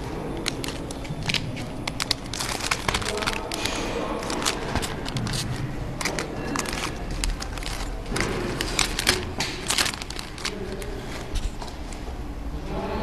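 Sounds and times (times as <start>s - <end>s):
plastic bags crinkling: 0.0s - 12.0s
low steady hum: 0.0s - 13.0s.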